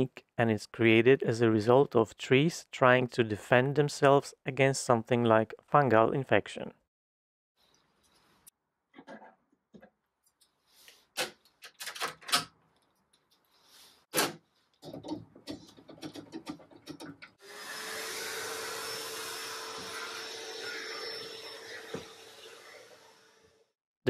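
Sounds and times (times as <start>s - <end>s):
shop vacuum humming: 17.4s - 23.6s.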